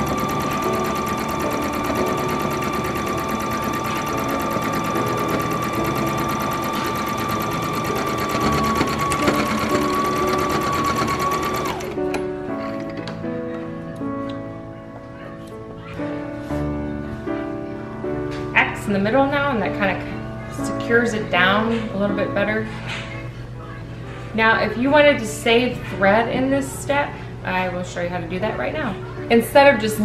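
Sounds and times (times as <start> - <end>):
electric sewing machine stitching: 0.0 - 12.2.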